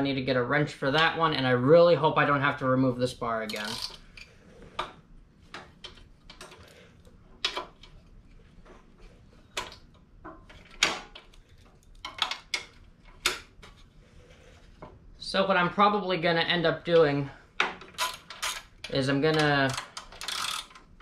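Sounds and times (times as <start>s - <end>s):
metal wrench clicking on bolts: 3.5s - 4.3s, 18.0s - 20.8s.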